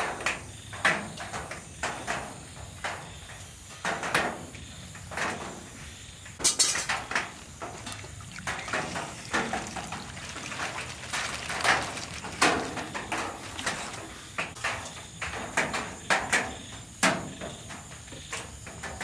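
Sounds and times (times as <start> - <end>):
sauce splashing and trickling: 6.9 - 14.6.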